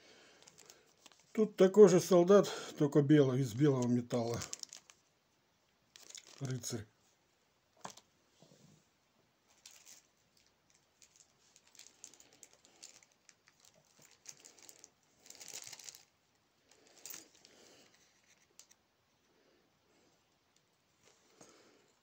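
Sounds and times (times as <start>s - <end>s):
plastic bag rustling: 0.2s - 2.2s, 3.4s - 5.1s, 5.9s - 6.8s, 9.5s - 18.8s.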